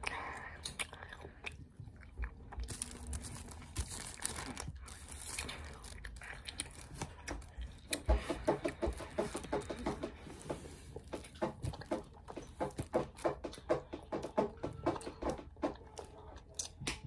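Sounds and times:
fruit snack peeled from plastic: 2.6 - 8.0
plastic film crinkling: 2.6 - 11.2.

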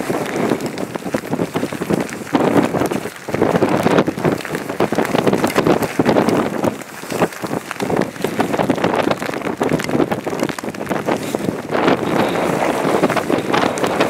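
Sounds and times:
rain falling: 0.0 - 14.0
wind buffeting microphone: 0.0 - 14.0.

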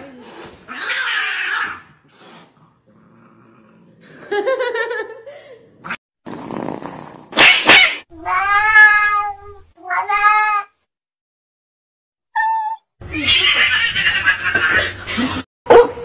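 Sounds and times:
cat hissing: 0.2 - 2.6, 6.3 - 8.1
cats crying and yowling: 0.7 - 2.0, 7.4 - 10.8, 12.4 - 15.0.

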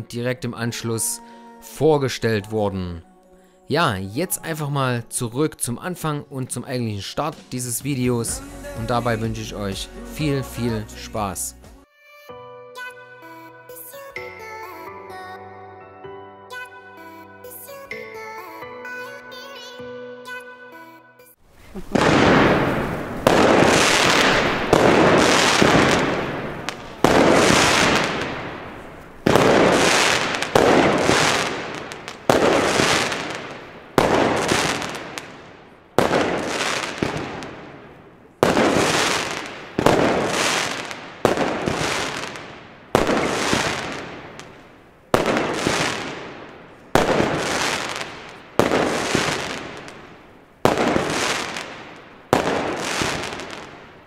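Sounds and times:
firework bangs: 21.6 - 54.0.

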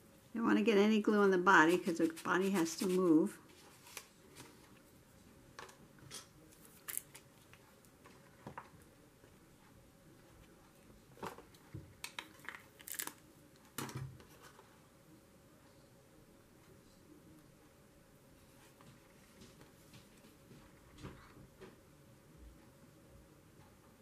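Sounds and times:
paper rustling: 1.7 - 4.8.

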